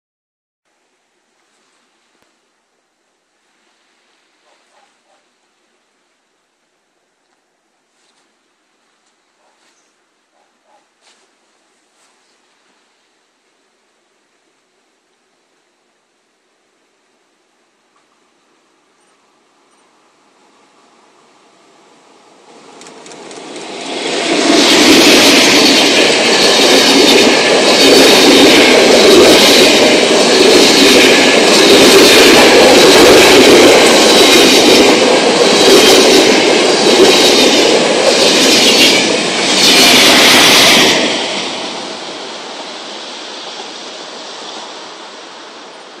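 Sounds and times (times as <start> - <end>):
train wheels rushing on rails: 20.4 - 46.0.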